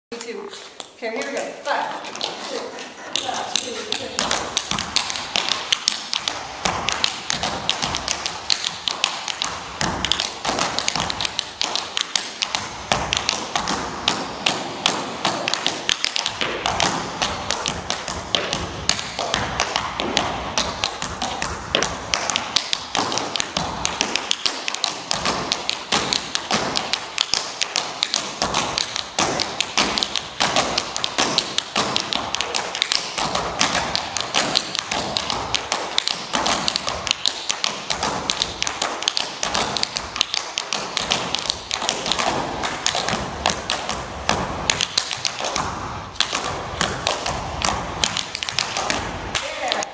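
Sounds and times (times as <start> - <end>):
tap shoes on wooden floor: 0.1 - 49.9.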